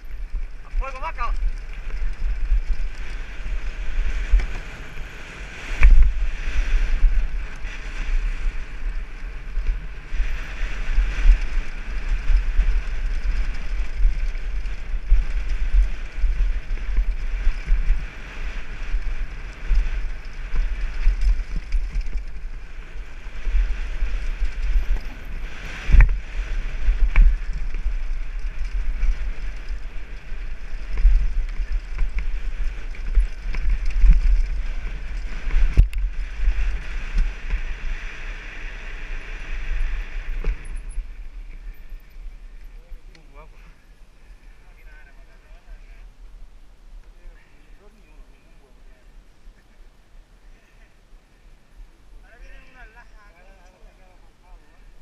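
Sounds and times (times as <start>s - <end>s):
mountain bike rattling over rocks: 0.0s - 42.1s
wind on camera microphone: 0.0s - 43.4s
bike hitting rocks: 23.4s - 38.1s.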